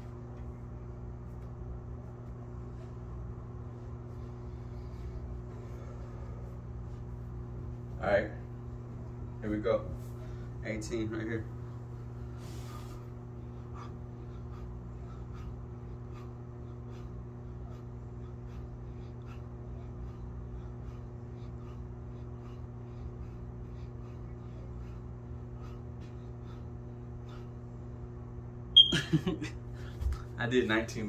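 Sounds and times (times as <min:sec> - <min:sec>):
low room hum: 0:00.0 - 0:31.0
man breathing in soft puffs: 0:02.2 - 0:28.2.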